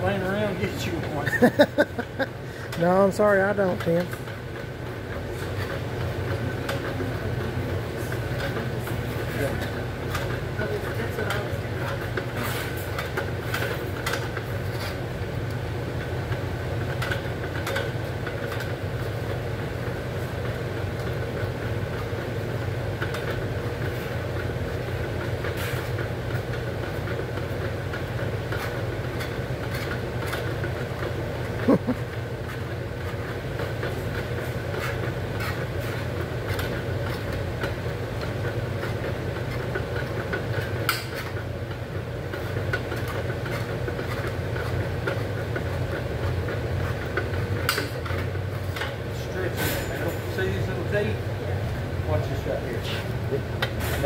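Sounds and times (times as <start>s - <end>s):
low machine hum: 0.0s - 54.0s
metal clicks and clanks: 16.8s - 18.8s, 33.0s - 50.6s.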